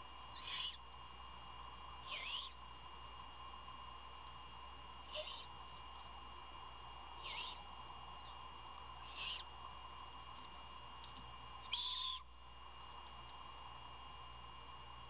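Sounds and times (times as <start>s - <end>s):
faint steady drone: 0.0s - 15.0s
owlet raspy begging screeches: 0.3s - 0.8s, 2.0s - 2.6s, 5.0s - 5.6s, 7.2s - 7.6s, 9.0s - 9.5s, 11.7s - 12.2s.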